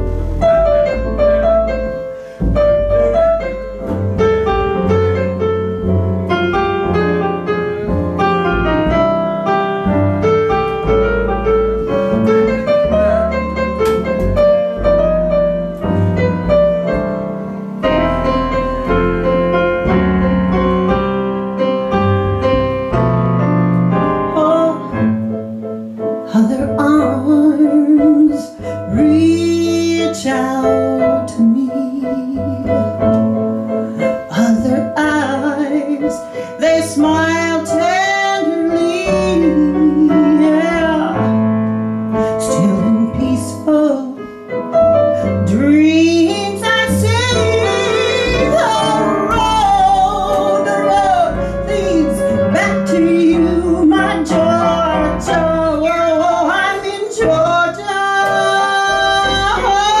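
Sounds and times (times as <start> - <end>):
upright bass: 0.0 - 27.4, 44.8 - 60.0
woman singing blues: 24.3 - 25.0, 26.2 - 33.2, 34.0 - 41.4, 42.1 - 44.3, 45.3 - 60.0.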